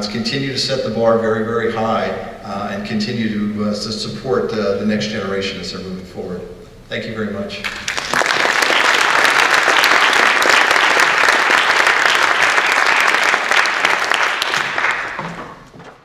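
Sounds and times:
audience applauding: 7.6s - 15.8s.

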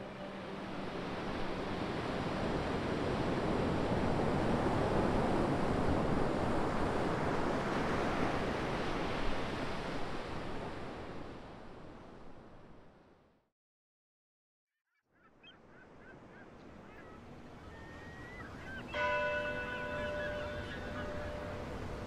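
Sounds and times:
small waves breaking on sand: 0.0s - 12.2s.

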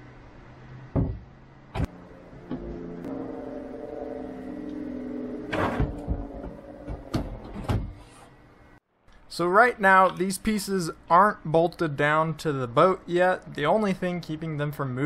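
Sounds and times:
droning hum of held tones: 0.0s - 8.8s.

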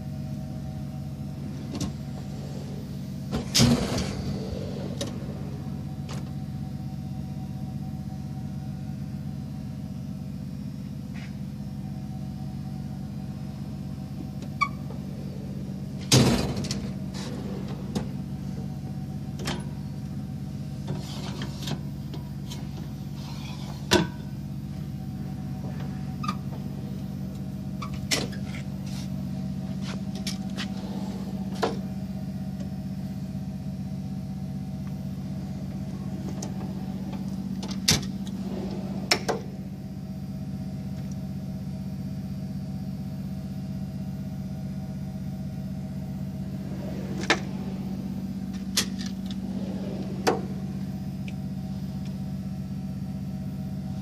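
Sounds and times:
steady low hum: 0.0s - 54.0s
toolbox drawers sliding: 1.4s - 6.4s, 14.7s - 19.8s, 29.7s - 32.2s, 34.9s - 39.8s, 46.0s - 52.4s.

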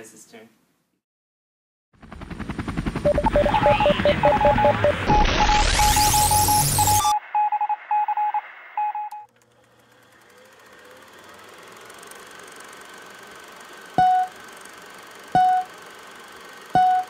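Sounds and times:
loud static burst: 3.1s - 7.2s
electronic beeps: 3.1s - 9.2s, 14.0s - 14.4s, 15.4s - 15.7s, 16.8s - 17.0s.

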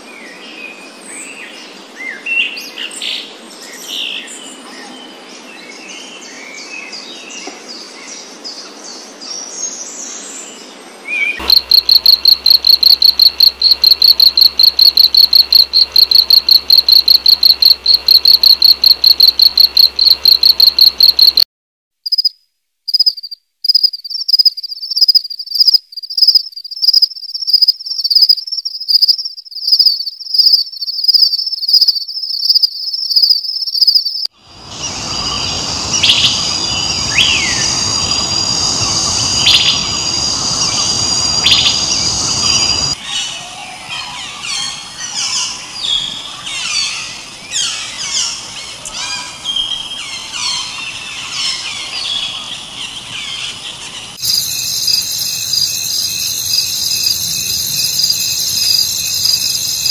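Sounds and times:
insect chorus: 11.4s - 21.4s, 22.9s - 43.0s, 49.7s - 59.9s
insects chirping: 11.4s - 21.4s, 22.1s - 43.0s, 49.9s - 59.9s
birds calling: 34.5s - 54.5s.

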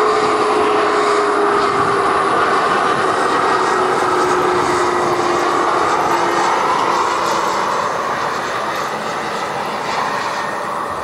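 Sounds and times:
jet passing low: 0.0s - 11.0s.

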